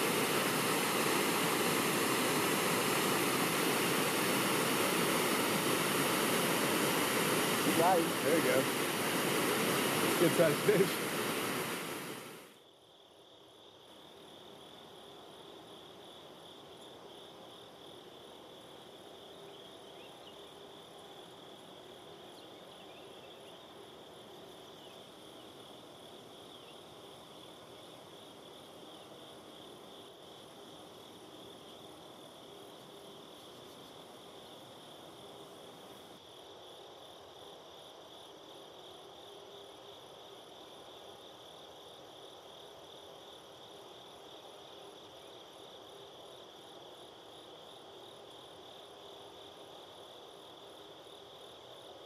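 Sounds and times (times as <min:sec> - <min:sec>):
rushing river water: 0:00.0 - 0:12.5
insects chirring: 0:00.0 - 0:52.0.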